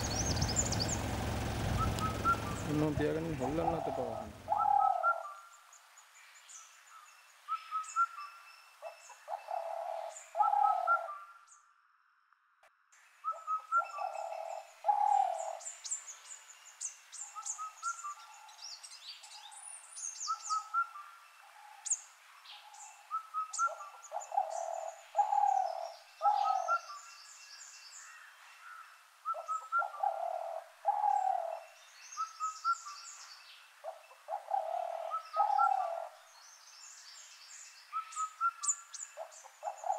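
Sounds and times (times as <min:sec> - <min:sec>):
low hooting bird call: 0:00.0 - 0:05.5, 0:08.8 - 0:11.5, 0:13.2 - 0:15.6, 0:23.1 - 0:27.1, 0:28.7 - 0:33.0, 0:33.8 - 0:36.2, 0:37.9 - 0:39.9
birds chirping and trilling: 0:00.0 - 0:12.2, 0:13.0 - 0:39.9.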